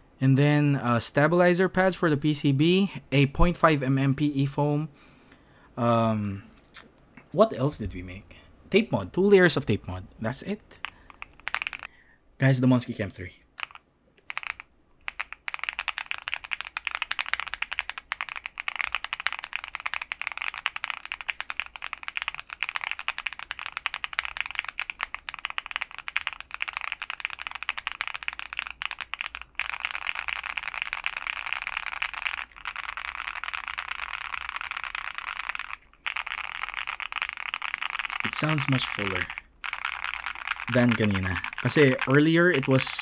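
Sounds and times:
mechanical keyboard typing: 10.8 - 11.9, 13.6 - 43.0.

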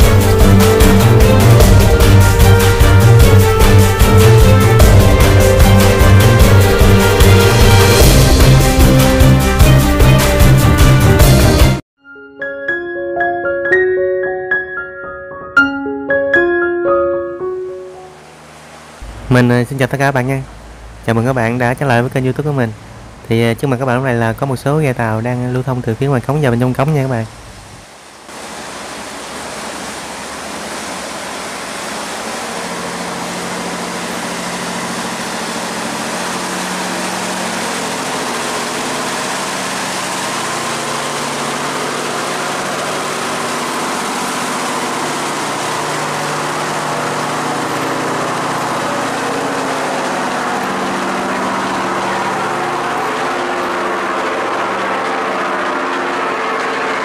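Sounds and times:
boat engine running: 0.0 - 11.8, 16.5 - 57.0
water churning in wake: 27.8 - 57.0.

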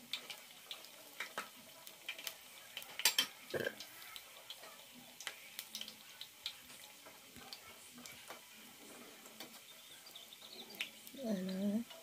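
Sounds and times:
food deep-frying in oil: 0.0 - 12.0
oil popping and crackling: 0.0 - 12.0.

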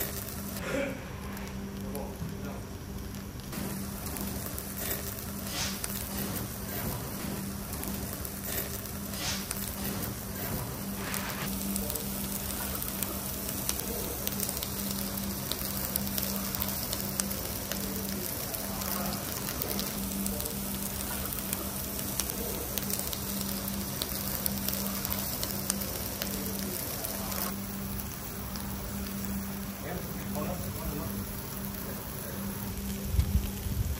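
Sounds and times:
meat sizzling on grill: 0.0 - 0.6, 1.2 - 33.9.

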